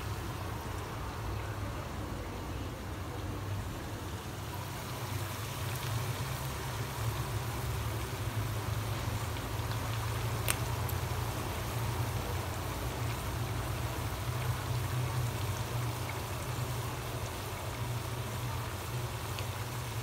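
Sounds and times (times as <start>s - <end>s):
chips sizzling in hot oil: 3.2s - 20.0s
oil popping: 8.6s - 12.1s.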